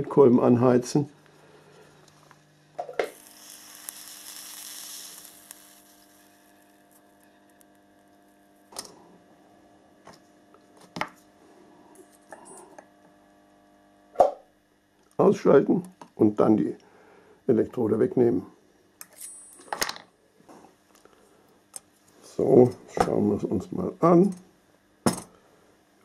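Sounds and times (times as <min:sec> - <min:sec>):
solder joint hissing sizzle: 0:00.0 - 0:14.0.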